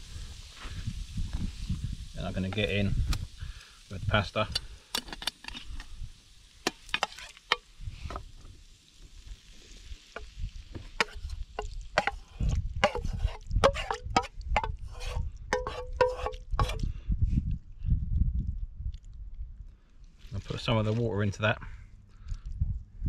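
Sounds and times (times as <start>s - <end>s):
utensil scraping metal frying pan: 6.7s - 7.7s, 10.1s - 16.8s.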